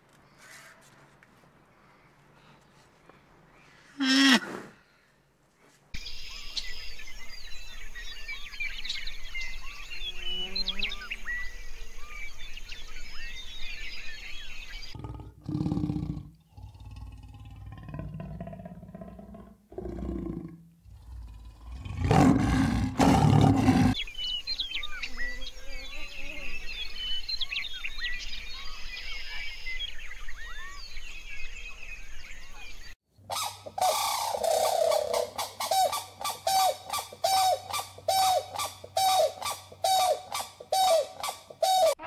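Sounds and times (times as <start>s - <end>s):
faint birds chirping: 0.0s - 19.2s, 20.8s - 42.0s
big cat growling: 15.0s - 24.0s
bird calling repeatedly: 33.2s - 42.0s.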